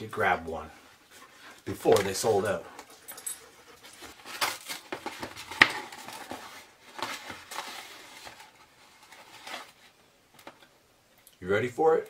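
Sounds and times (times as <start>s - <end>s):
paper envelope rustling: 3.9s - 10.6s.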